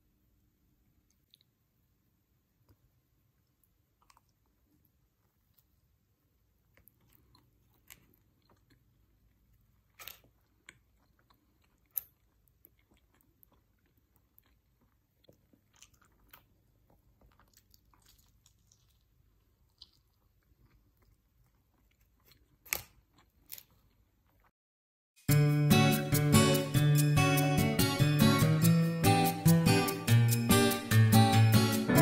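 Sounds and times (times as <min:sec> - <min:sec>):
person chewing pizza: 0:02.5 - 0:24.5.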